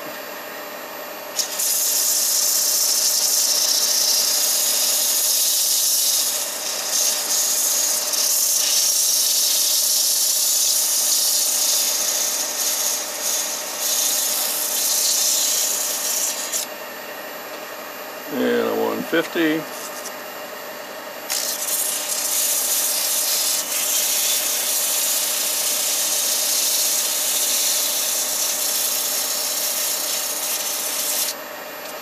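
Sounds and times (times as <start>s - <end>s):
sandpaper hissing on spinning wood: 1.4s - 16.7s, 19.7s - 20.2s, 21.3s - 31.4s.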